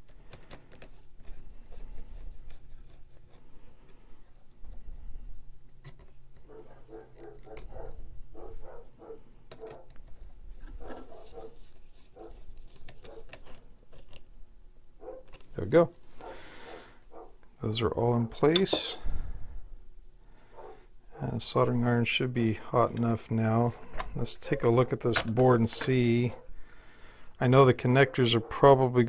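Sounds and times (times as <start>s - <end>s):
wires rustling and clicking: 0.0s - 5.0s, 5.7s - 14.3s.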